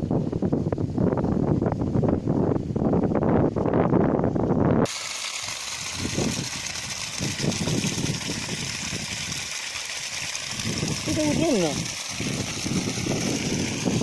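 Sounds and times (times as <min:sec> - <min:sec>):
wind buffeting microphone: 0:00.0 - 0:04.9, 0:05.8 - 0:09.6, 0:10.3 - 0:14.0
water gushing from pipe: 0:04.8 - 0:14.0.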